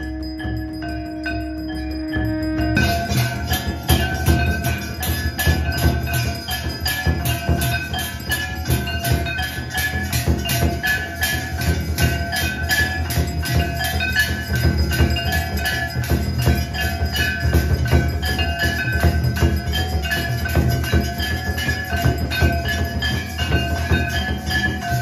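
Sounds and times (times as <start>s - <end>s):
brass gong struck with stick: 0.0s - 6.4s
large drum beating: 0.0s - 25.0s.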